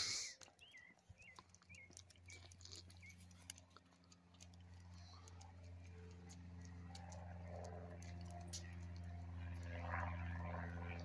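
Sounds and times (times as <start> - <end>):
distant airplane engine drone: 0.0 - 11.0
bird chirps: 0.6 - 3.3.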